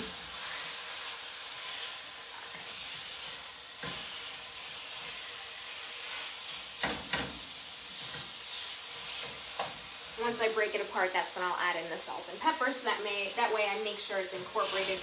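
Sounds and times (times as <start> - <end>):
meat sizzling in a frying pan: 0.0 - 15.0
wooden spoon scraping a pan: 7.9 - 10.3, 13.4 - 15.0.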